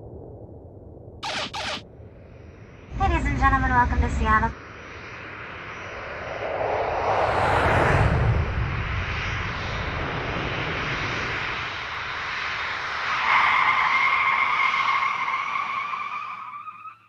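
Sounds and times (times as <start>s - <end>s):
high engine whine: 1.2s - 13.8s
airliner cabin engine and air noise: 1.2s - 14.1s.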